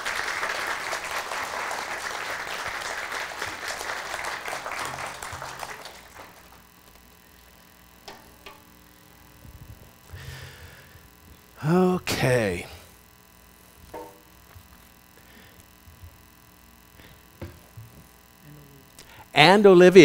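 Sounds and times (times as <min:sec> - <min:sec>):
congregation applauding: 0:00.0 - 0:06.7
metal bar stool knocks: 0:13.9 - 0:14.3.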